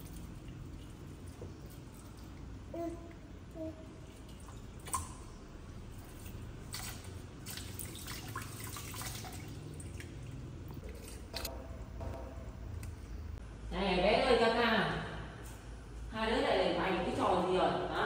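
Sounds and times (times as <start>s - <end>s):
hands splashing water: 5.9s - 11.5s
sharp knock: 11.5s - 12.6s.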